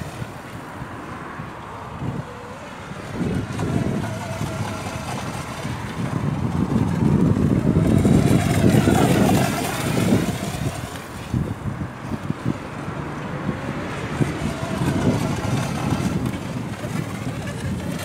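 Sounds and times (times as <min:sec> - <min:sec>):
electric model boat motor whine: 0:00.0 - 0:18.0.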